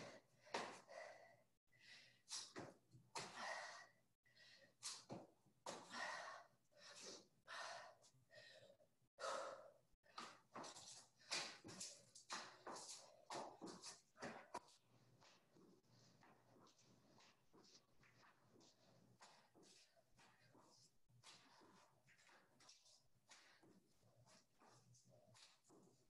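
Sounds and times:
person breathing hard: 0.0 - 2.5, 3.2 - 5.1, 5.8 - 11.7.

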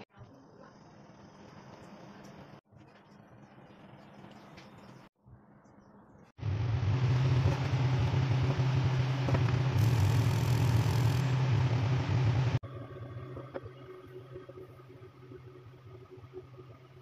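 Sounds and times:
range hood fan humming: 6.4 - 12.6.

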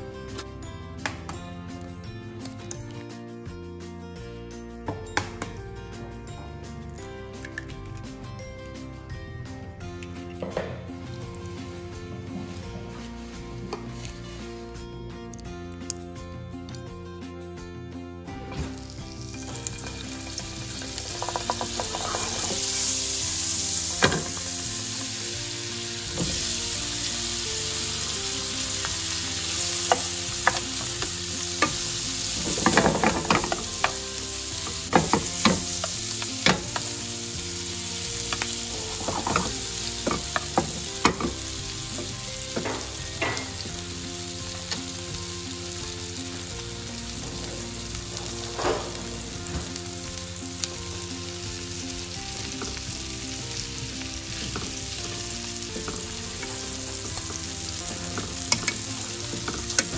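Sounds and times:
sausage sizzling in a pan: 18.7 - 59.9
slices clattering in pan: 19.5 - 22.9, 23.9 - 24.6, 28.0 - 37.0, 38.2 - 43.7, 54.3 - 59.9.

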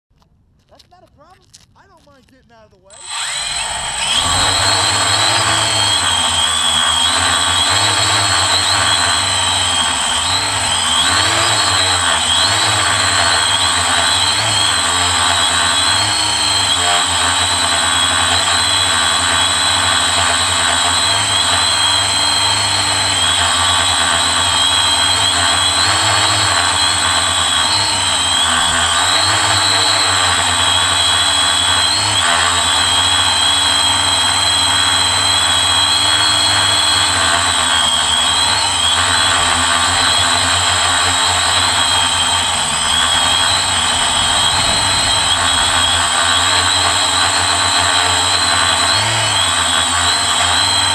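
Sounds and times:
quadcopter propellers buzzing: 2.9 - 50.9.

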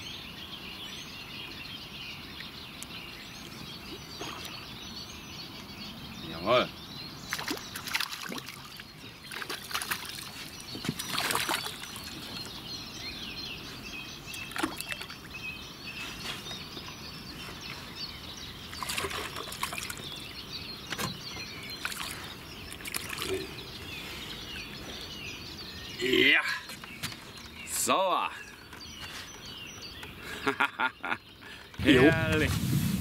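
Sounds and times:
birds chirping: 0.0 - 33.0
water splashing: 7.3 - 12.4, 18.7 - 20.1, 21.8 - 23.5, 31.8 - 33.0.

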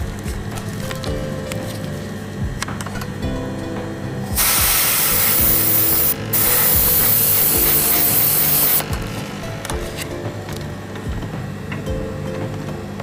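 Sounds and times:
airbrush spraying hiss: 4.4 - 8.8.

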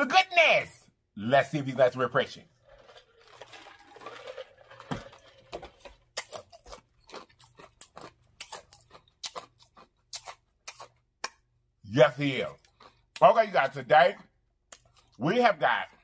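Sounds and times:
wet lip smacks and mouth clicks: 14.7 - 15.2.

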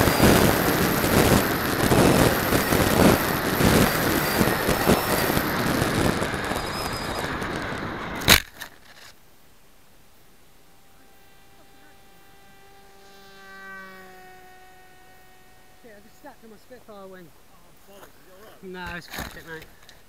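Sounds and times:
wind rush: 0.0 - 8.3
model plane motor revving: 0.0 - 8.5, 10.5 - 16.8.

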